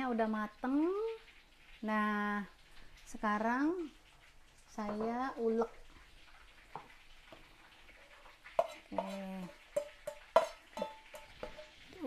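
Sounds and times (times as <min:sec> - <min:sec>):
utensils scraping frying pan: 0:07.4 - 0:12.0.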